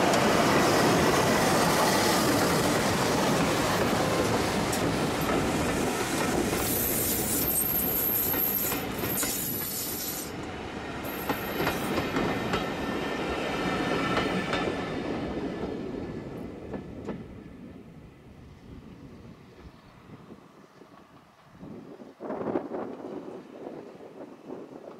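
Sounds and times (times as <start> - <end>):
train wheels clicking over rail joints: 1.2 - 12.8
high wheel squeal: 6.6 - 10.3.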